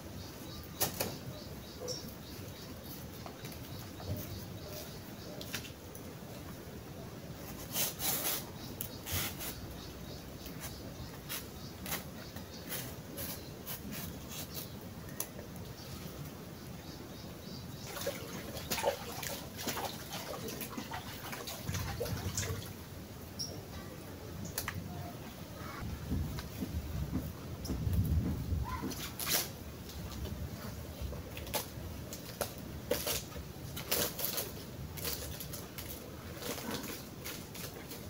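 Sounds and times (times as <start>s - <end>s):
leaf rustling and crackling: 27.8s - 38.0s.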